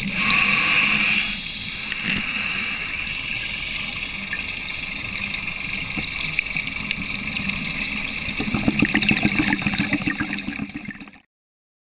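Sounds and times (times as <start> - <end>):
underwater hiss with crackling: 0.0 - 10.4
diver's exhaled bubbles gurgling: 3.0 - 11.2.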